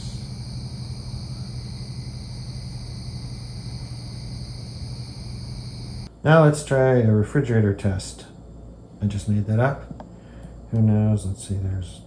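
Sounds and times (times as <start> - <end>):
crickets and insects chirring: 0.0 - 12.0
steady low hum: 0.0 - 12.0.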